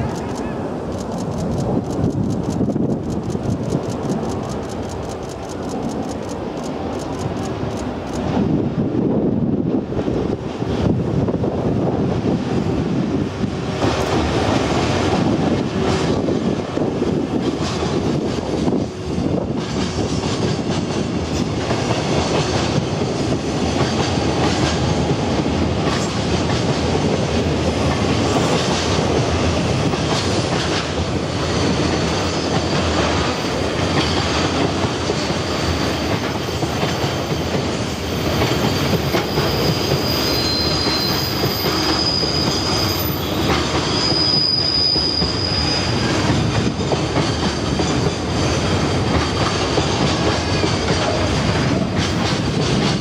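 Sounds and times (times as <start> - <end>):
freight train rumbling: 0.0 - 53.0
high wheel squeal: 36.3 - 48.2.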